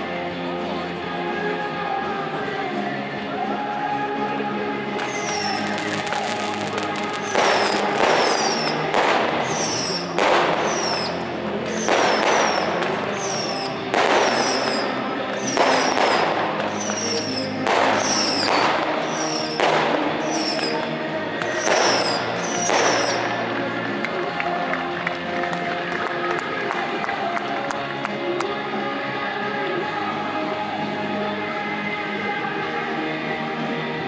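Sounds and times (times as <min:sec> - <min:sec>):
background music: 0:00.0 - 0:34.0
high falling whistles: 0:05.0 - 0:05.7, 0:07.2 - 0:08.8, 0:09.5 - 0:11.2, 0:11.8 - 0:14.8, 0:15.4 - 0:19.6, 0:20.2 - 0:20.8, 0:21.5 - 0:23.3
fireworks exploding: 0:05.0 - 0:24.4.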